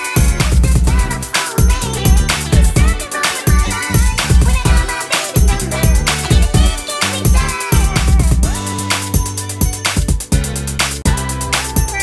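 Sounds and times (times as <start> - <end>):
bass line: 0.0 - 12.0
electronic funk beat: 0.0 - 12.0
kick drum hits: 0.2 - 8.5.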